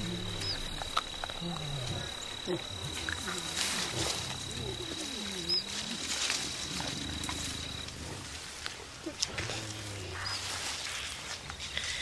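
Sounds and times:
gorillas grunting: 0.0 - 8.2
high insect-like whine: 0.0 - 8.4
leaves rustling: 0.0 - 12.0.

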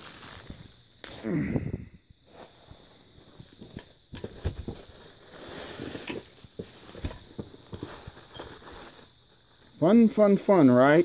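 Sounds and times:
plastic bag crinkling: 0.0 - 0.8, 4.6 - 9.8.

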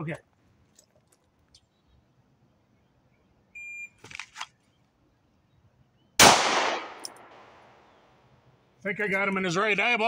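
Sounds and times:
rustling of pistol draw: 4.0 - 4.6
pistol shot echoing: 6.2 - 7.8.

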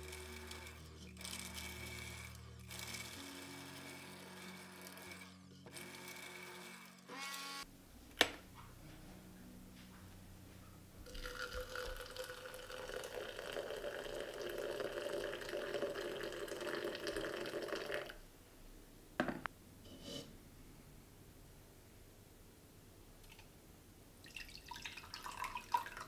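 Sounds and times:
liquid pouring into container: 11.0 - 18.2, 24.2 - 26.0.

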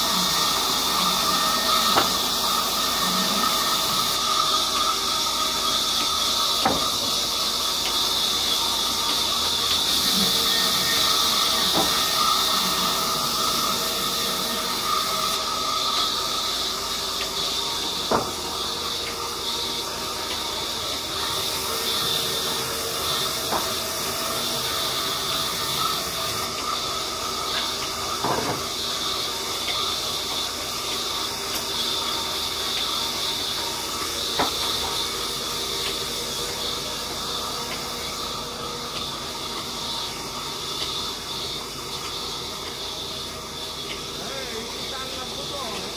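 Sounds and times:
steady hissing noise: 0.0 - 45.9.

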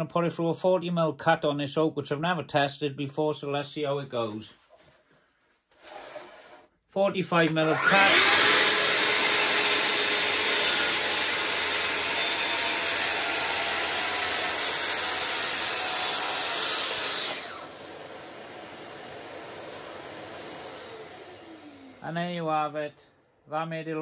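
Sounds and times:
circular saw cutting wood: 5.8 - 6.7, 7.3 - 22.9
dust extractor running: 7.4 - 22.5.

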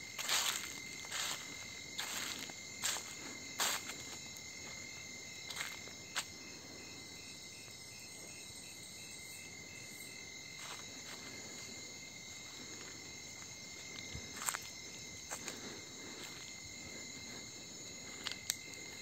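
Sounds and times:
footsteps scuffing on dirt: 0.0 - 6.4, 10.5 - 19.0
crickets and insects trilling: 0.0 - 19.0
faint pulsing insect call: 0.0 - 19.0.

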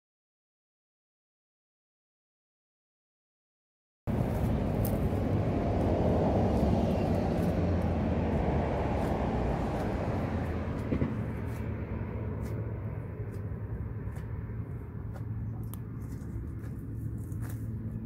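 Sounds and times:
vehicle driving past: 4.1 - 18.0.

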